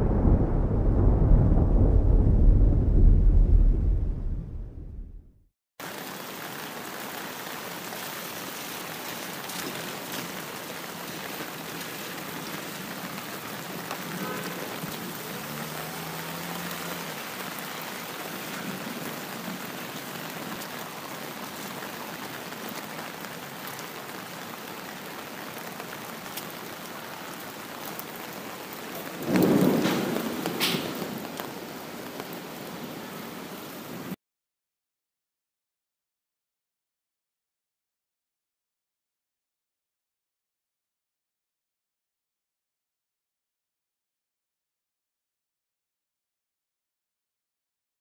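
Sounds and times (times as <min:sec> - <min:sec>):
thunder clap: 0:00.0 - 0:05.3, 0:29.2 - 0:31.5
steady rain: 0:05.8 - 0:34.2.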